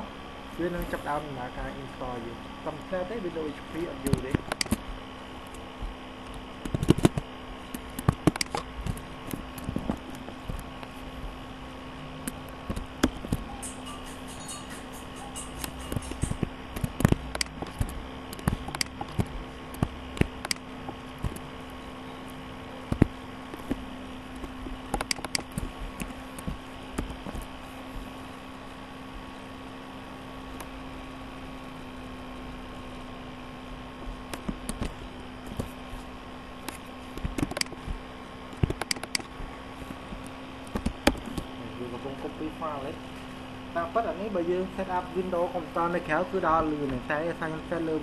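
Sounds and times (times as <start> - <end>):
steady low machine hum: 0.0 - 48.0
sharp clicks and taps: 4.0 - 5.6, 6.2 - 10.9, 12.2 - 21.5, 22.9 - 23.8, 24.4 - 27.5, 34.2 - 35.7, 36.6 - 37.9, 38.5 - 39.3, 40.1 - 41.5.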